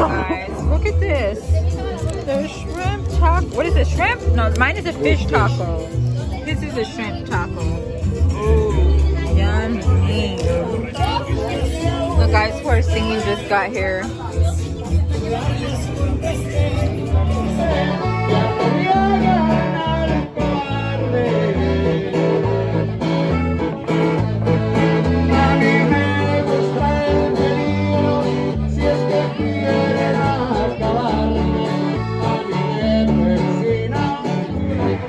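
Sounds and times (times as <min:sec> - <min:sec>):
plucked strings with bass line: 0:00.0 - 0:35.0
men singing: 0:06.6 - 0:23.4, 0:24.8 - 0:35.0
button accordion playing: 0:15.4 - 0:35.0.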